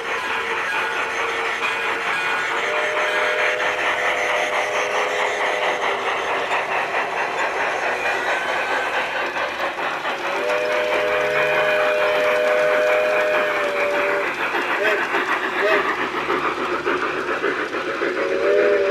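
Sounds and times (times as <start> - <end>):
model locomotive chime whistle: 0.0 - 6.5, 10.4 - 14.2
model train wheels clicking on track: 0.0 - 18.9.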